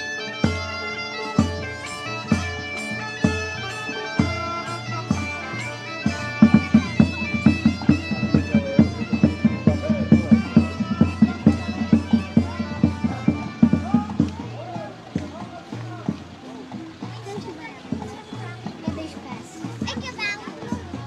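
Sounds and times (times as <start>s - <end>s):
bagpipe melody with drone: 0.0s - 14.3s
drum beating: 0.0s - 21.0s.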